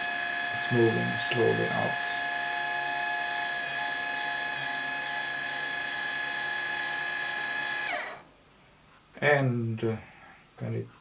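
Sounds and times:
electric motor and gearbox whining: 0:00.0 - 0:08.2.

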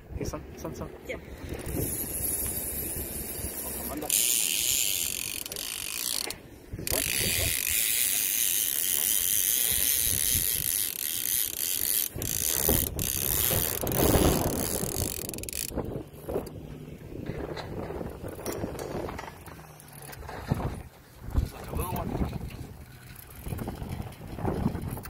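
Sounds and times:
fishing reel drag buzzing: 0:01.3 - 0:16.7.

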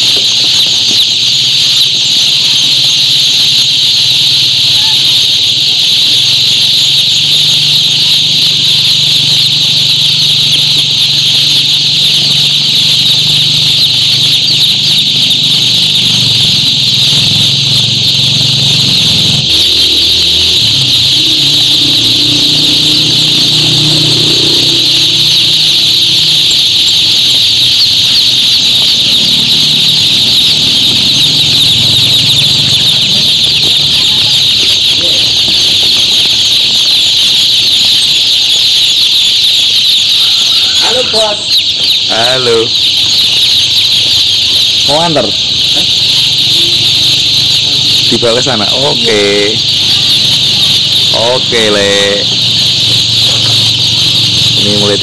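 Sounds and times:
chicks peeping: 0:00.0 - 0:55.0
low hum: 0:17.6 - 0:26.0.

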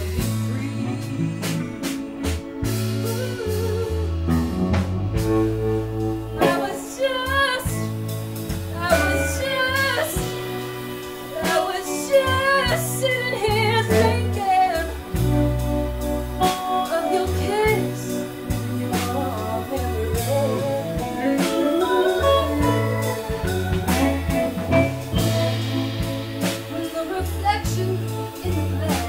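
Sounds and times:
bass guitar: 0:00.0 - 0:29.0
drums: 0:00.0 - 0:29.0
electric guitar: 0:00.0 - 0:29.0
woman singing with vibrato: 0:03.0 - 0:04.4, 0:06.4 - 0:08.1, 0:08.7 - 0:15.3, 0:16.4 - 0:25.9, 0:26.7 - 0:29.0.

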